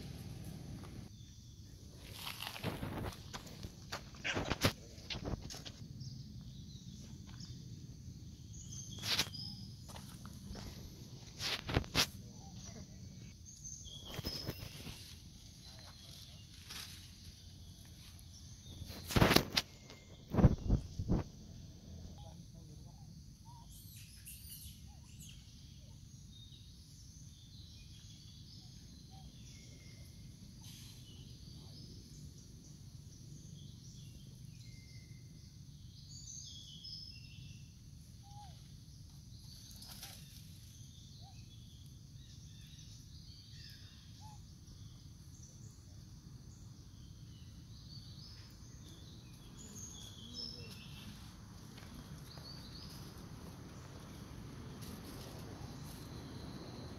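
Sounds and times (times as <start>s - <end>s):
low background rumble: 0.0s - 2.0s
high insect drone: 0.0s - 56.9s
bird chirps: 8.4s - 10.8s, 12.2s - 21.3s, 22.0s - 54.4s.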